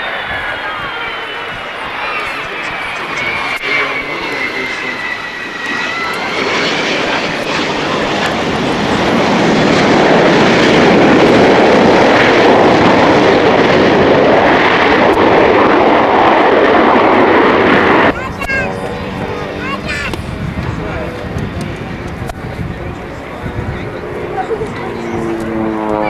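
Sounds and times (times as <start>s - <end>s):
jet engines roaring: 0.0s - 26.0s.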